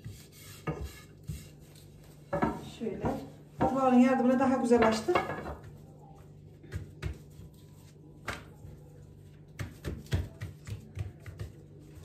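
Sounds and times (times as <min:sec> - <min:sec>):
hands pressing dough on a mat: 0:05.6 - 0:12.0.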